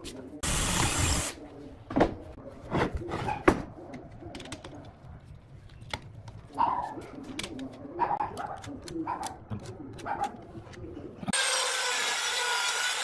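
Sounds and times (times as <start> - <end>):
power drill whirring: 0.4 - 1.4.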